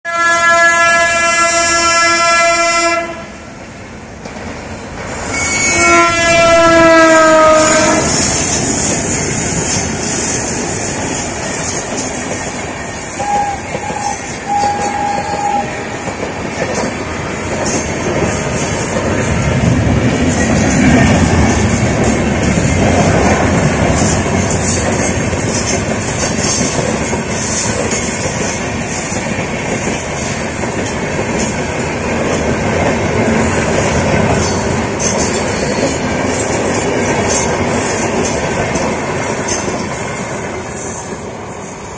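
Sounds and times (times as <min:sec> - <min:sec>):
locomotive horn blasts: 0:00.0 - 0:03.3, 0:05.2 - 0:08.3, 0:13.2 - 0:16.1
train coaches rumbling past: 0:00.1 - 0:41.9.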